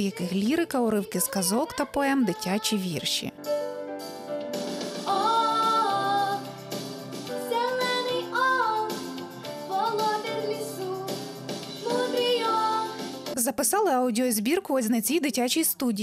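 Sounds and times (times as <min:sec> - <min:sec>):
girl singing: 0:00.0 - 0:03.1, 0:05.1 - 0:06.5, 0:07.4 - 0:13.1
musical accompaniment: 0:02.3 - 0:13.4.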